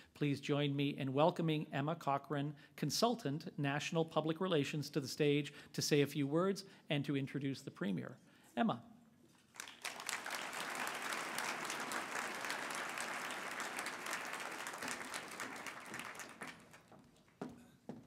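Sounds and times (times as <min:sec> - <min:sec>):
audience applauding: 0:09.5 - 0:17.4.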